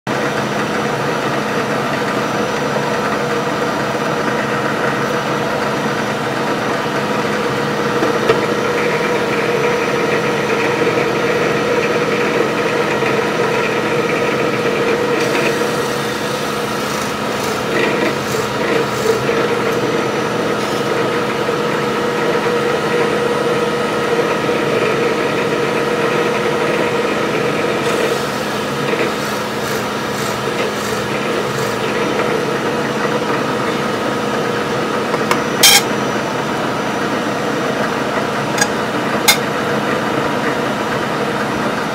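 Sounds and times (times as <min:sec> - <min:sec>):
drill press motor hum: 0:00.1 - 0:41.9
plug cutter rasping wood: 0:15.2 - 0:21.1, 0:27.8 - 0:32.4.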